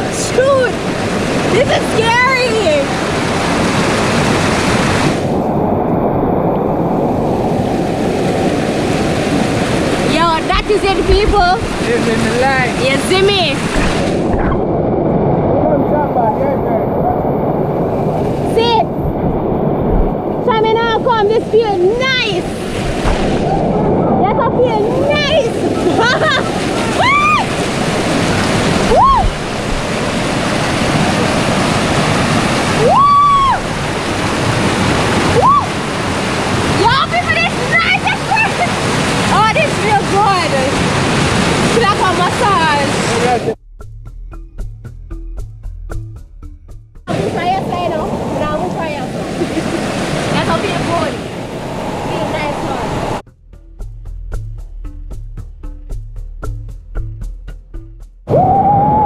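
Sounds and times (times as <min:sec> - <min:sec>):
river water rushing: 0:00.0 - 0:43.6, 0:47.1 - 0:53.2.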